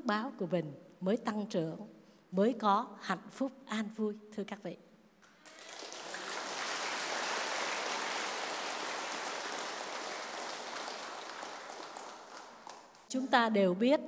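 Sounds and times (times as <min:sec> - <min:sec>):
audience applauding: 0:05.2 - 0:13.1.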